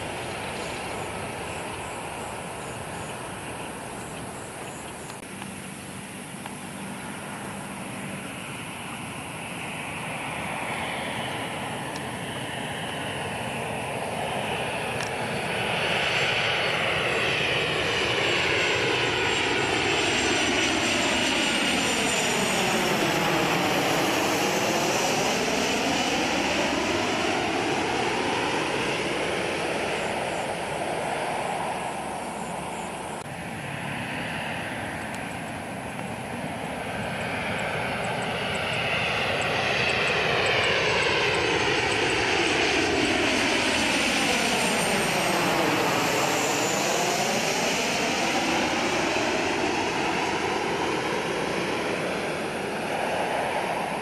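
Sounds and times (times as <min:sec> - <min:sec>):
jet airliners passing overhead: 0:00.0 - 0:54.0.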